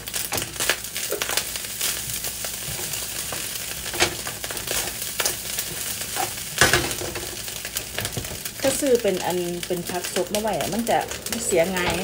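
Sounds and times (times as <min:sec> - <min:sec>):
rice sizzling in a wok: 0:00.0 - 0:12.0
wooden spatula scraping: 0:02.6 - 0:06.4, 0:10.4 - 0:12.0.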